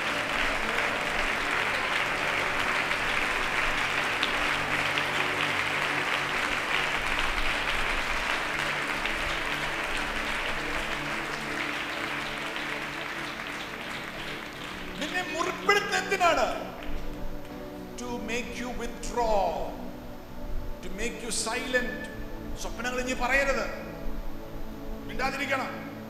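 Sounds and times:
congregation clapping and applauding: 0.0 - 26.0
soft held music chords: 0.0 - 26.0.

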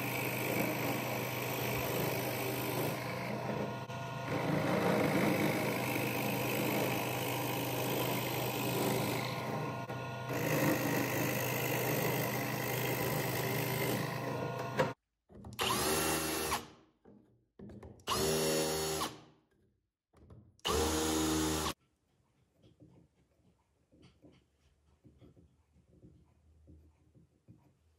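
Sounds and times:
drill press boring wood: 0.0 - 15.0, 18.1 - 19.2, 20.6 - 21.8
power drill whining: 0.0 - 15.0, 15.6 - 16.6, 18.1 - 19.2, 20.6 - 21.8.

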